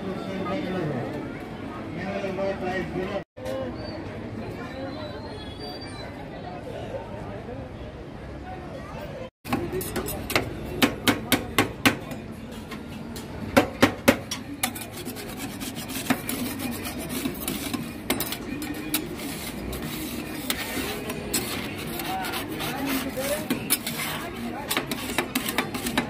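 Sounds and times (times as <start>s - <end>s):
spatulas scraping steel plate: 14.0s - 26.0s.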